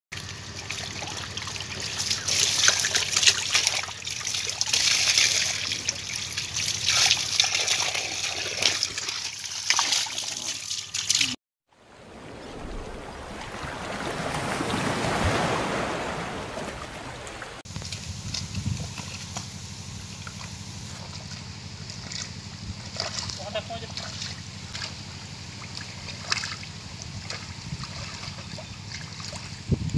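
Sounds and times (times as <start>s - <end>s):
water gushing from a hose: 0.2s - 11.4s
fish splashing: 0.3s - 19.5s, 20.3s - 29.6s
steady low hum: 16.4s - 29.7s.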